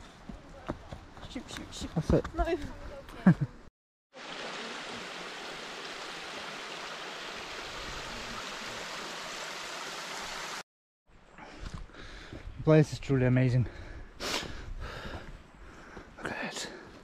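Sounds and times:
stream running over stones: 0:04.2 - 0:10.6.

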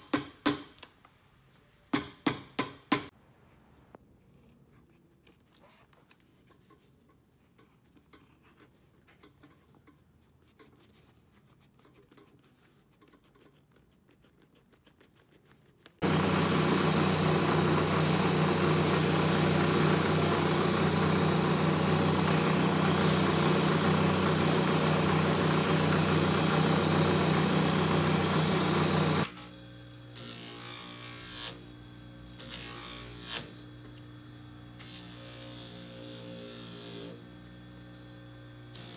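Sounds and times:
sanding wheel grinding: 0:16.0 - 0:29.4
quieter machine running: 0:16.0 - 0:30.2.

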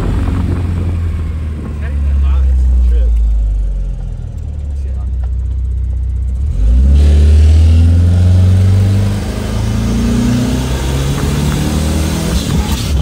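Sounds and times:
truck engine accelerating: 0:00.0 - 0:13.0.

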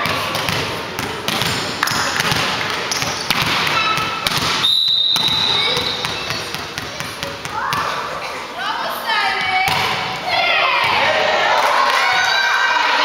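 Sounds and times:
volleyball bouncing on wooden court: 0:00.0 - 0:08.1, 0:09.4 - 0:11.2
people chattering and shouting: 0:00.0 - 0:13.0
referee's whistle: 0:04.6 - 0:06.2.

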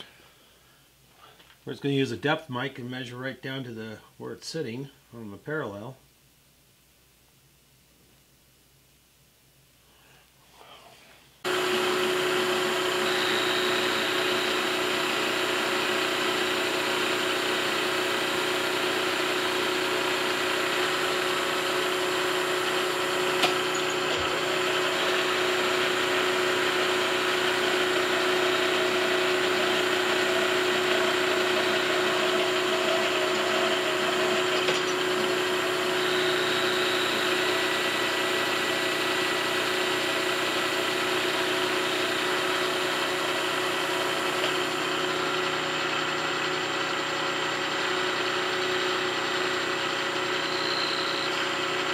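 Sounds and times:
milling machine cutting metal: 0:11.5 - 0:51.9.

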